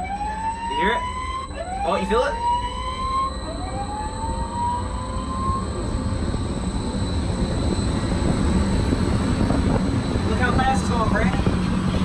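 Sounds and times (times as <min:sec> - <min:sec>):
wind machine whine: 0:00.0 - 0:12.0.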